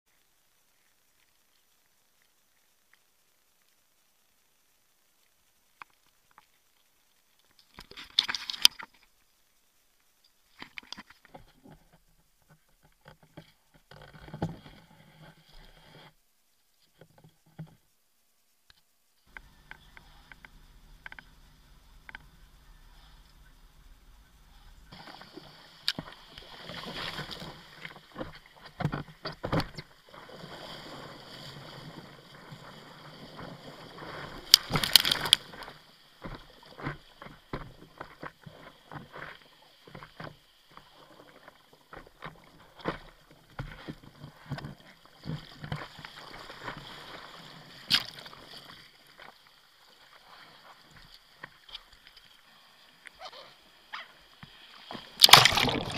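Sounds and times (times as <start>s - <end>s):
water splashing around bodyboard: 24.7s - 49.4s, 54.8s - 55.9s.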